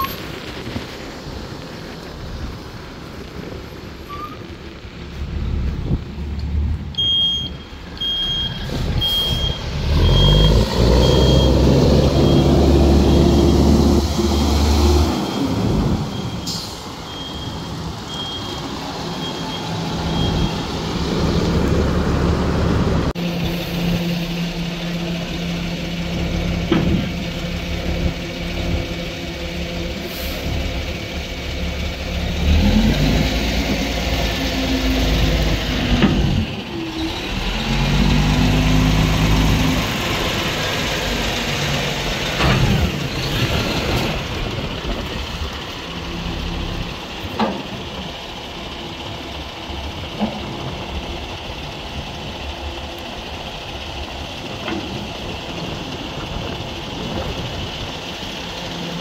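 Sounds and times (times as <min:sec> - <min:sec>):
diesel truck engine idling: 0:44.0 - 0:59.0.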